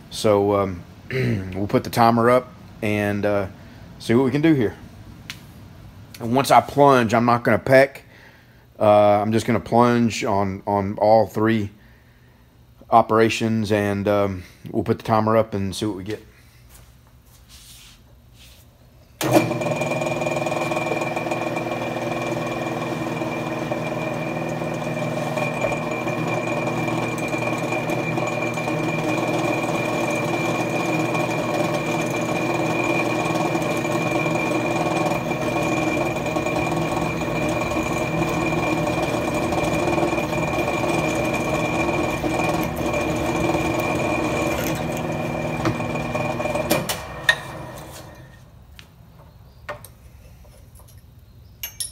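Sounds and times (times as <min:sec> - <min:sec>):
drill cutting through steel: 0:19.2 - 0:48.2
milling machine motor whining: 0:19.2 - 0:48.4.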